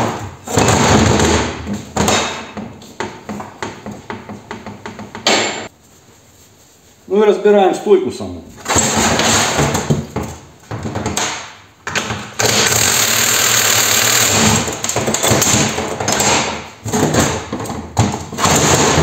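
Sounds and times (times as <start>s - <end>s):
impact wrench running: 12.4s - 14.9s.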